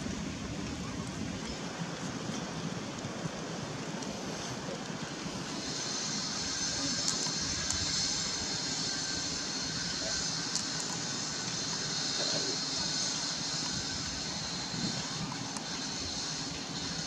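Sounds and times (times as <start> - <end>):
high hiss: 4.2 - 17.0
faint clicks: 10.4 - 11.6.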